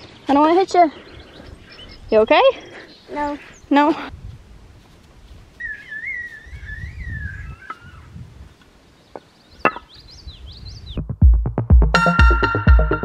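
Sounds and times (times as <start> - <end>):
wavering whistle: 5.6 - 7.9.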